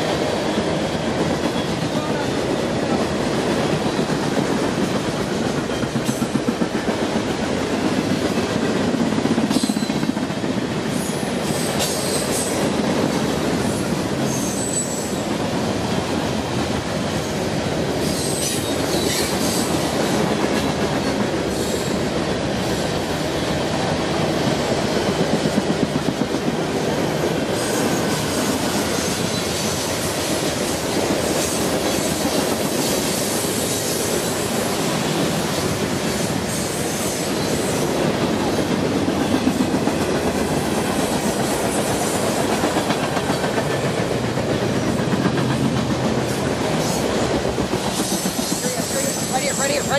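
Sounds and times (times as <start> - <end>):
high wheel squeals: 14.3 - 15.2
wheels clacking over rail joints: 38.0 - 49.9.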